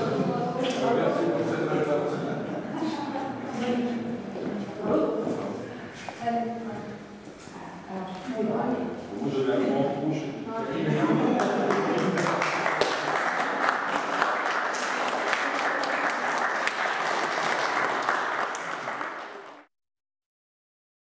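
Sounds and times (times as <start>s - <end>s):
people clapping: 11.2s - 19.7s.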